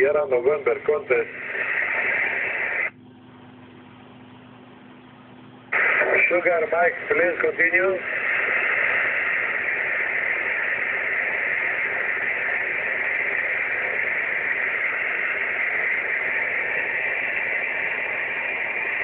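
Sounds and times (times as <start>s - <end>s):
radio receiver hiss: 0.0s - 3.0s, 5.6s - 19.0s.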